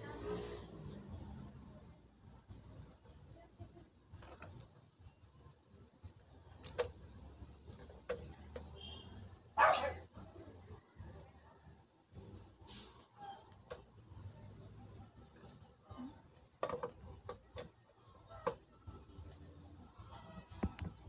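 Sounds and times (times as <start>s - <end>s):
sharp clicks and knocks: 5.6s - 8.8s, 16.3s - 19.4s.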